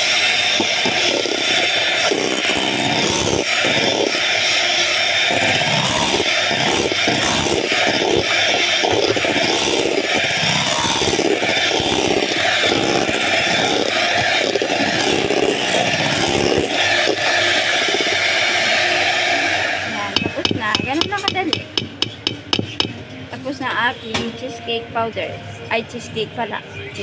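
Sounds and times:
electric mixer whipping cream: 0:00.0 - 0:22.8
beaters tapping metal bowl: 0:20.1 - 0:23.0.

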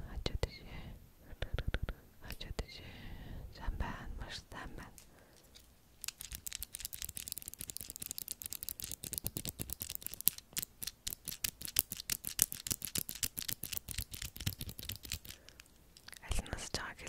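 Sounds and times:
crisp metal clicks: 0:05.0 - 0:16.3.

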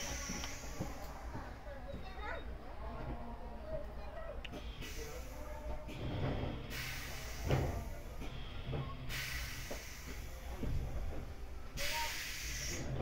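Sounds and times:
hiss: 0:00.0 - 0:01.2, 0:04.6 - 0:10.9, 0:11.8 - 0:13.0.

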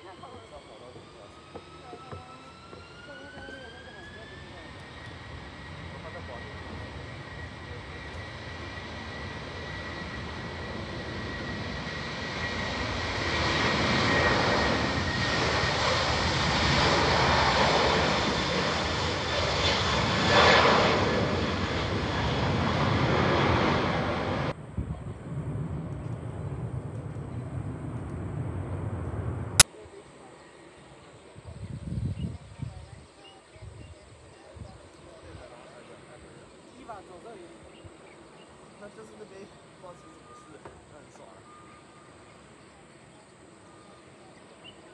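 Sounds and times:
low rumble of climbing plane: 0:00.0 - 0:29.6
jet engines at takeoff: 0:00.0 - 0:44.9.

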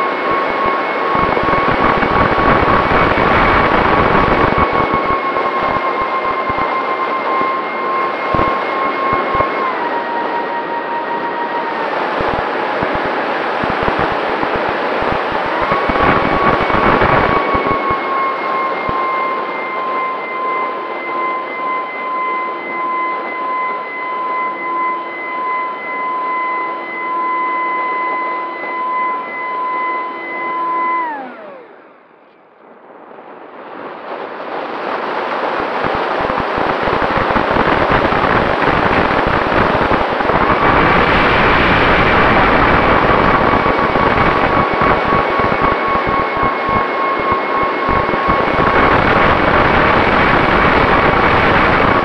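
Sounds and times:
wind rushing on microphone: 0:00.0 - 0:19.0, 0:32.7 - 0:52.0
electric motor and propeller whine: 0:00.0 - 0:52.0.

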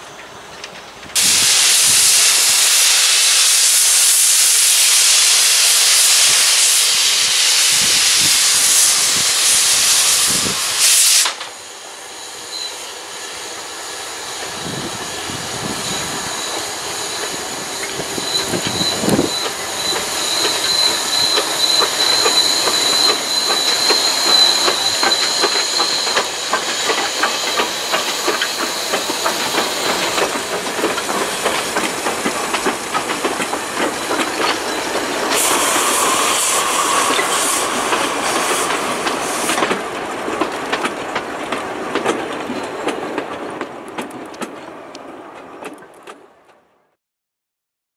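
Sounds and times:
steam hiss from locomotive: 0:01.2 - 0:40.0
faint high wheel squeal: 0:12.0 - 0:30.6.

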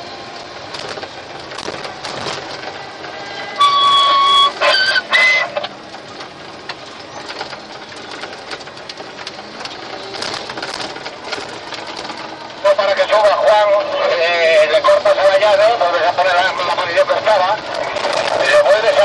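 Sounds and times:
rattles and clicks in cab: 0:00.4 - 0:13.3, 0:16.4 - 0:19.0
whistle-like tones rising: 0:03.6 - 0:05.6.

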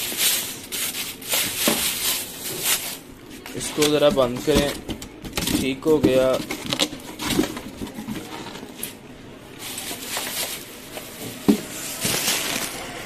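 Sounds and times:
cardboard box rustling and scraping: 0:09.6 - 0:12.9.

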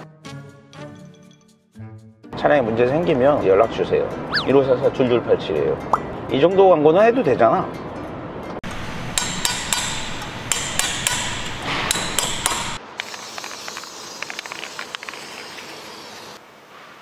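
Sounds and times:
metal tool tapping engine: 0:09.1 - 0:12.8.

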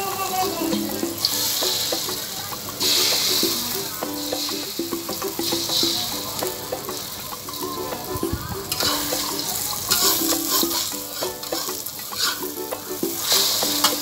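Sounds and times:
omelette sizzling in hot oil: 0:00.0 - 0:14.0
metal spatula scraping pan: 0:08.6 - 0:14.0.

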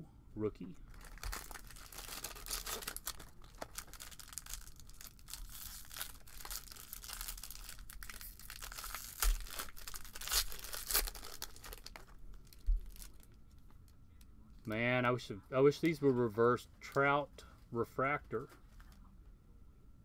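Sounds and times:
foil pack crinkling: 0:00.9 - 0:13.7.

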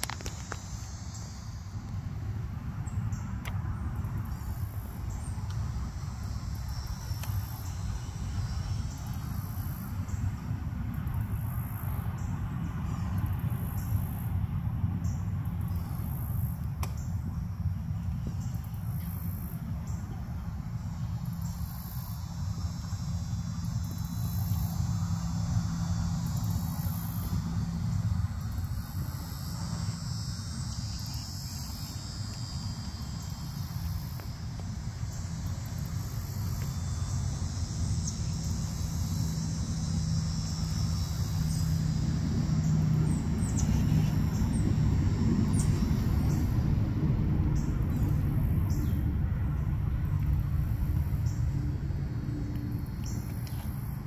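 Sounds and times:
crickets chirping: 0:00.0 - 0:54.0
faint drone: 0:00.0 - 0:54.0
low rumble: 0:38.4 - 0:54.0.

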